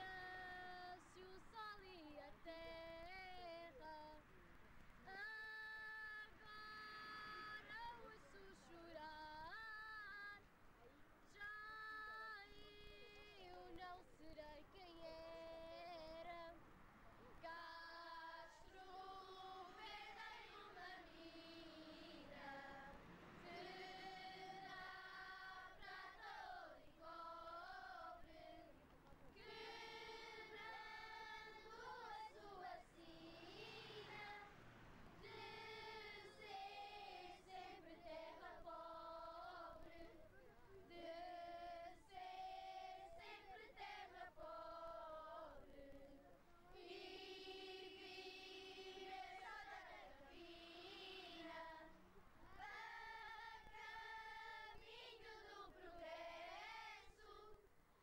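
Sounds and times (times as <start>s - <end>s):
children's choir singing: 0.0s - 3.9s, 17.4s - 28.8s, 29.4s - 40.2s, 40.9s - 57.6s.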